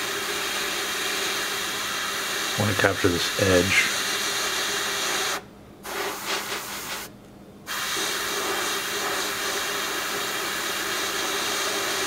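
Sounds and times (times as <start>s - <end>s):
airbrush spraying hiss: 3.6s - 7.1s, 7.7s - 12.0s.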